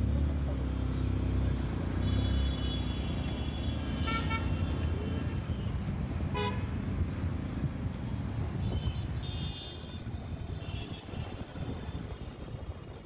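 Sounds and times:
road noise of moving motorbike: 0:00.0 - 0:13.0
vehicle horns tooting: 0:02.0 - 0:04.8, 0:06.3 - 0:06.7.

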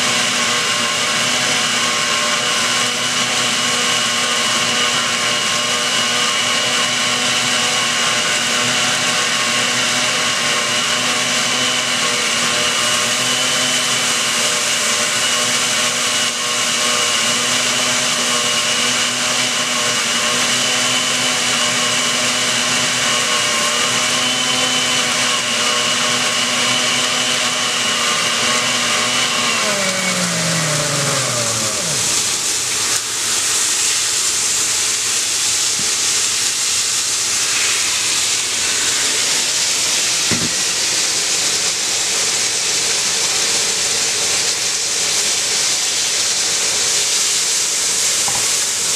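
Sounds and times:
blender motor whining: 0:00.0 - 0:48.9
steady hiss: 0:30.8 - 0:48.9.

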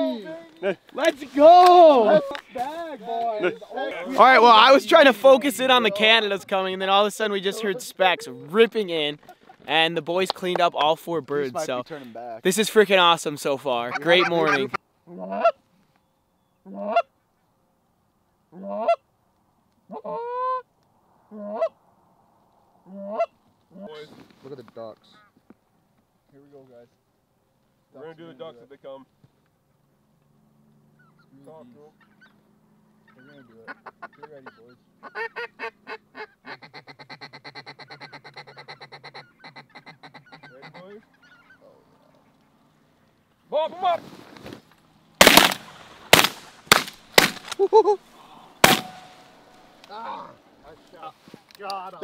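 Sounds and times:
goose honks: 0:16.6 - 0:17.1, 0:18.6 - 0:19.0, 0:22.9 - 0:24.0, 0:33.1 - 0:41.7
hand-blown waterfowl calls: 0:33.1 - 0:41.8.

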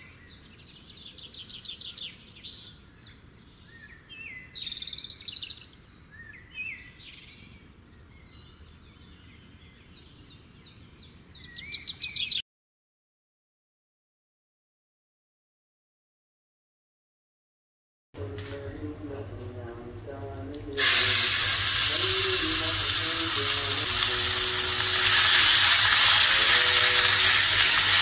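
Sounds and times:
birds chirping and twittering: 0:00.0 - 0:12.4.

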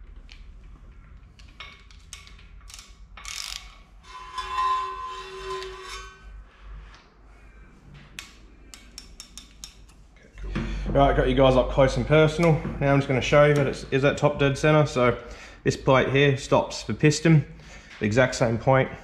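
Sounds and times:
socket ratchet clicking: 0:01.9 - 0:03.8
ringing metallic scrape: 0:04.0 - 0:06.8.

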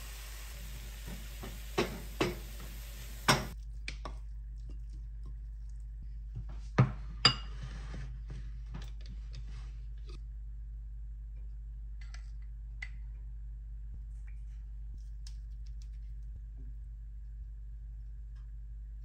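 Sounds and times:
faint sizzle: 0:00.0 - 0:03.6
spatula knocking on wok: 0:00.8 - 0:03.6.

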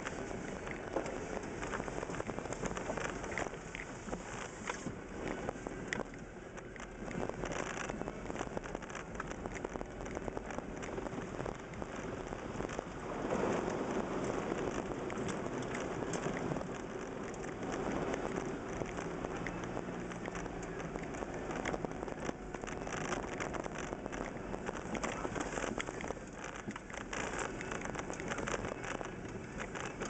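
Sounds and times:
clods ticking against vehicle: 0:00.0 - 0:30.0.

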